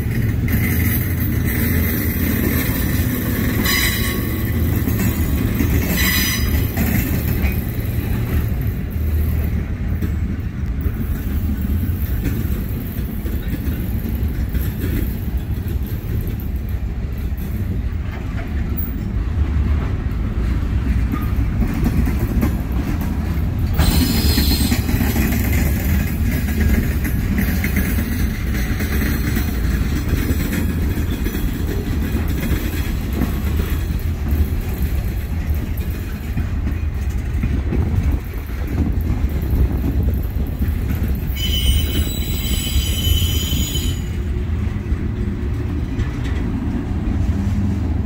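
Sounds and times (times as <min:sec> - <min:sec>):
train wheels rumbling on rail: 0:00.0 - 0:48.0
wheel flanges screeching: 0:00.5 - 0:07.6, 0:23.6 - 0:28.2, 0:41.1 - 0:44.3.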